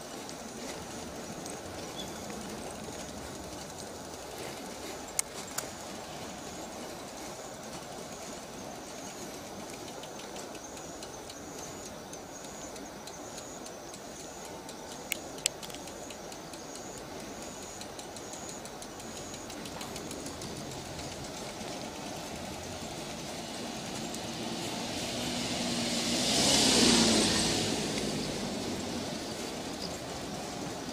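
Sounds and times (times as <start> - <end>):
steady rumble: 0.0 - 11.7, 18.7 - 30.9
insect chirping: 0.0 - 30.9
sharp clicks: 0.2 - 24.2.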